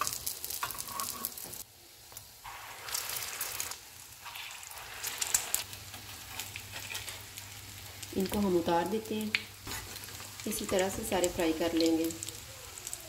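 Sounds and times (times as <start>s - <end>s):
hot oil sizzling and crackling: 0.0s - 13.0s.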